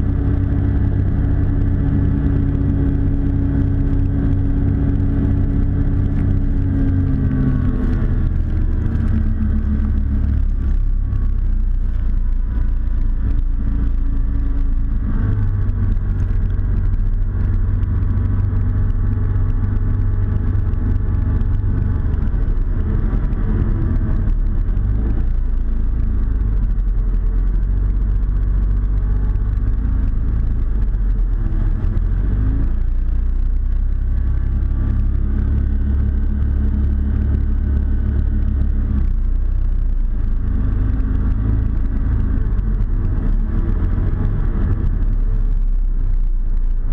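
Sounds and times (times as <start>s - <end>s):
hovercraft engine and fan: 0.0s - 12.3s.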